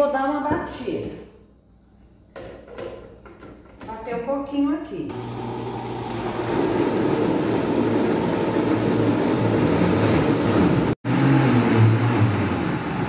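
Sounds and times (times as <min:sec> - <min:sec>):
blender running: 0:05.1 - 0:13.0.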